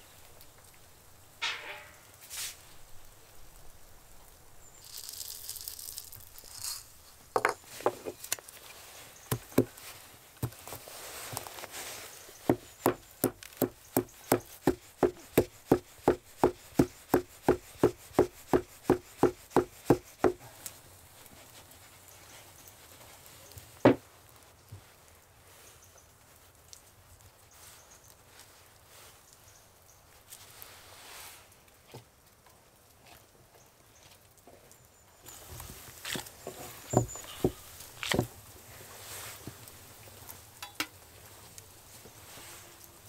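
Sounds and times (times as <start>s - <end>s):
short rustle: 1.4s - 3.2s, 4.7s - 23.8s, 35.2s - 40.4s
pestle pounding in wooden mortar: 9.3s - 9.7s, 12.4s - 20.4s.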